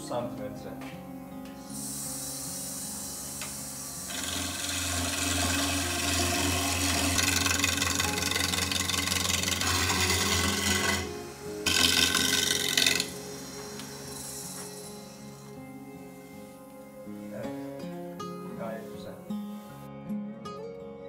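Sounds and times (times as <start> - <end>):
lathe gouge cutting spinning wood: 1.8 - 15.6
motor hum: 3.2 - 15.3.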